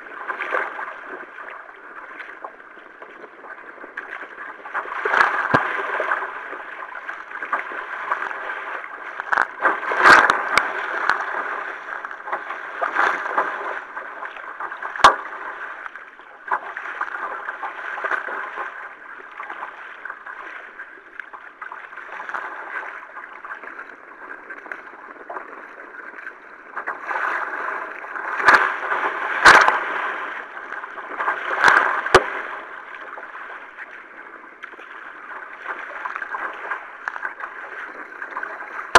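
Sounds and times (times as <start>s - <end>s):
water rushing along a kayak: 0.0s - 38.9s
sharp splashes or knocks: 5.0s - 6.1s, 9.2s - 11.5s, 14.7s - 15.6s, 28.3s - 30.0s, 31.2s - 32.5s.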